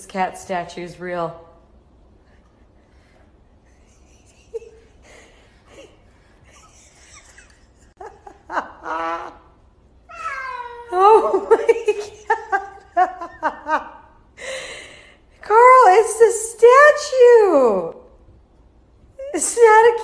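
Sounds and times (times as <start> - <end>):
cat yowling: 10.1 - 11.0.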